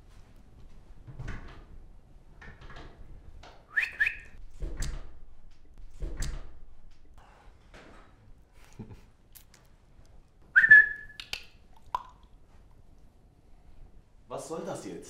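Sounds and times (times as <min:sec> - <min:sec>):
person whistling rising notes: 0:03.7 - 0:04.4, 0:10.6 - 0:11.2.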